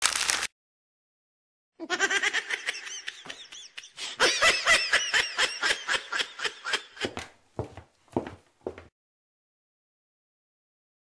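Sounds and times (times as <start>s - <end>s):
person laughing in rapid cackles: 1.8s - 7.2s.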